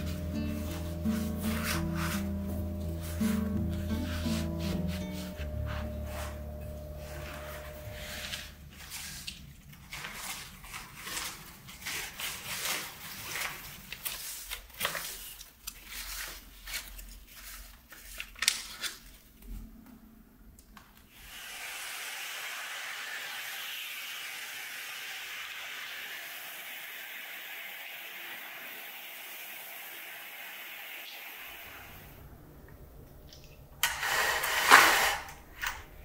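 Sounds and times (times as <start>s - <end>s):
cloth rustling on leaves: 0.0s - 18.2s.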